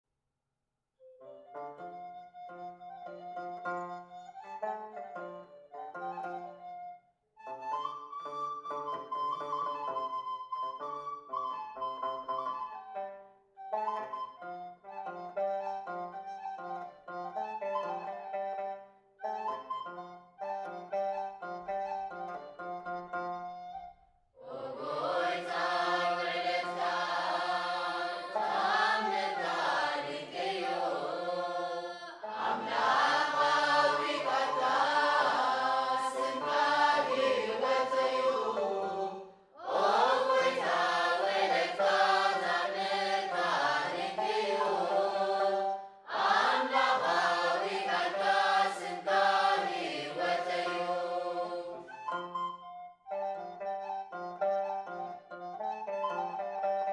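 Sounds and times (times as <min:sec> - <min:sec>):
choir singing a hymn: 0:24.4 - 0:52.0.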